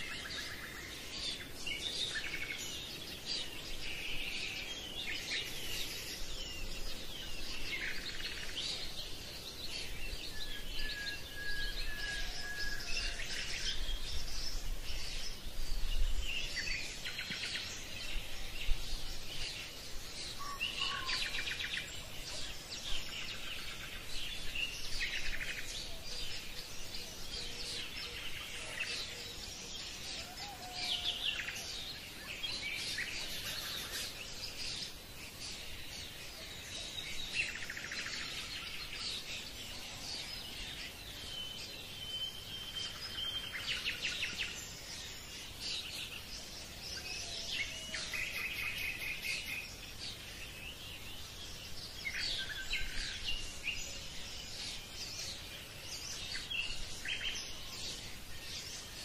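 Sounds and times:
birds chirping and trilling: 0:00.0 - 0:59.0
faint steady hiss: 0:00.0 - 0:59.0.

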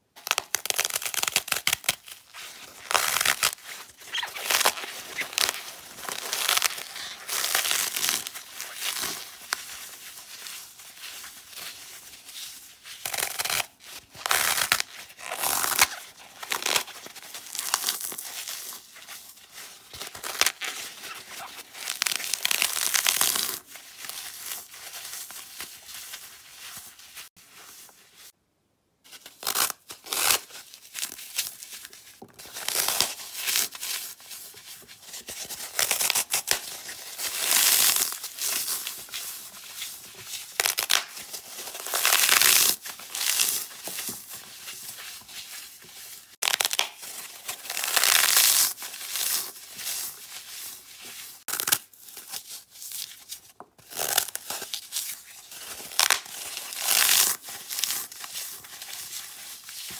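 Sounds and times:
dry foam crunching and crumbling: 0:00.2 - 0:28.3.

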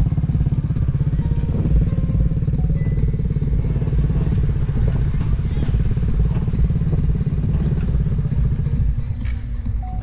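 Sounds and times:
engine idling: 0:00.0 - 0:10.0.

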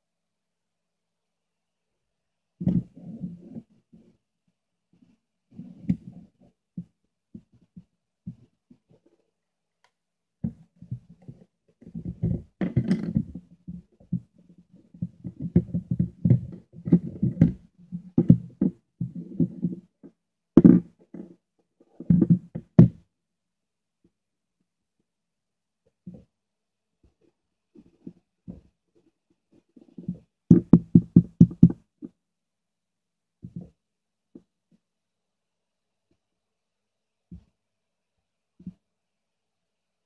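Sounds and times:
hands tapping plastic case: 0:30.5 - 0:31.8.

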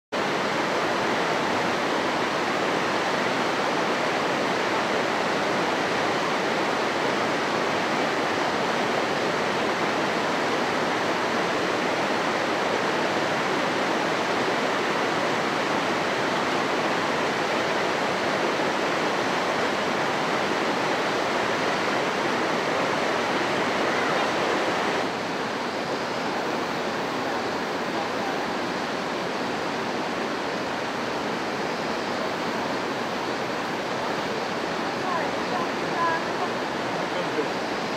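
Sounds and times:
river water rushing over rocks: 0:00.2 - 0:37.9.

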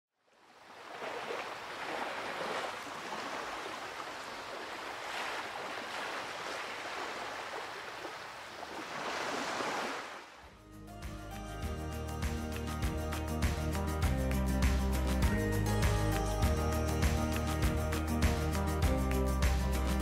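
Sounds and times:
rushing splashing water: 0:00.3 - 0:10.5.

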